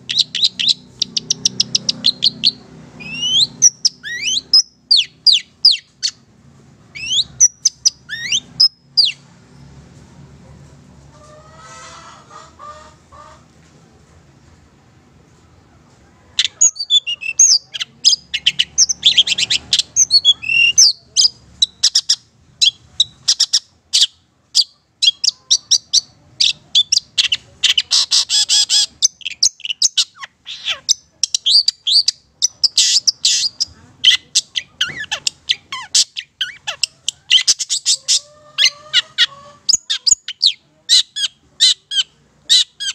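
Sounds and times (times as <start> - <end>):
bird singing sharp high calls: 0.1 - 6.2.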